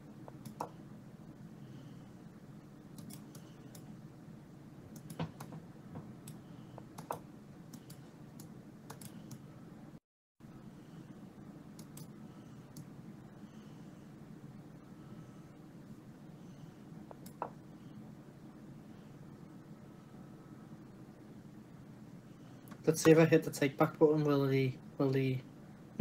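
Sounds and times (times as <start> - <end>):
low steady hum: 0.0 - 26.0
computer mouse clicks: 0.3 - 0.8, 3.0 - 3.9, 4.9 - 5.6, 6.2 - 9.4, 11.7 - 12.1, 17.1 - 17.5.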